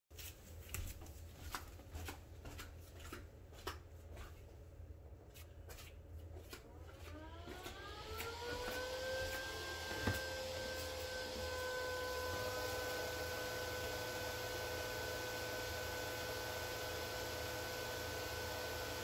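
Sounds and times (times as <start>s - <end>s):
robot vacuum motor whine: 7.1s - 19.0s.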